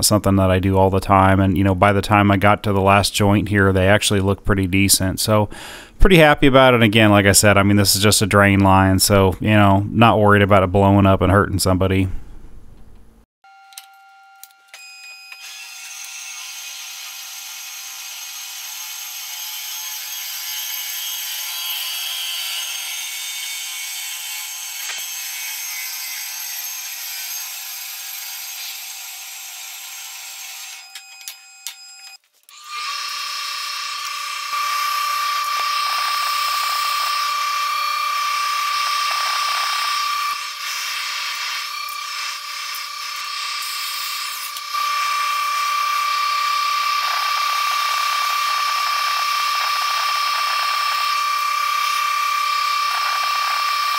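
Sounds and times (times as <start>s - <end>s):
power tool whining: 13.5s - 53.9s.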